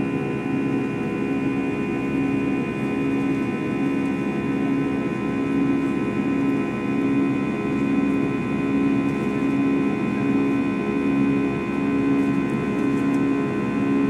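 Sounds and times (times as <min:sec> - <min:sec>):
turbofan engines droning: 0:00.0 - 0:14.0.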